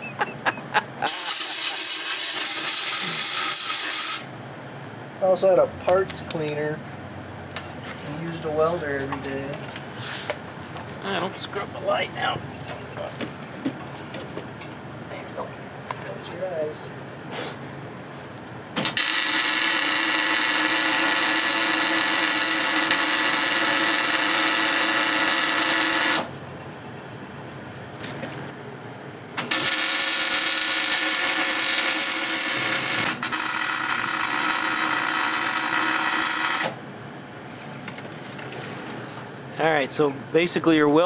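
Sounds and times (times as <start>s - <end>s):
welder arc crackling: 1.0s - 4.3s, 18.8s - 26.3s, 29.4s - 36.8s.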